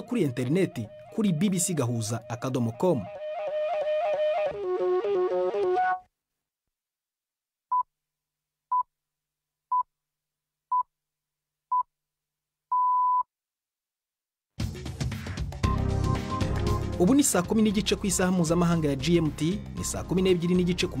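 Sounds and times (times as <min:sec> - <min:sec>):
music: 0:00.0 - 0:06.1, 0:14.6 - 0:21.0
time signal beeps: 0:16.1 - 0:16.5.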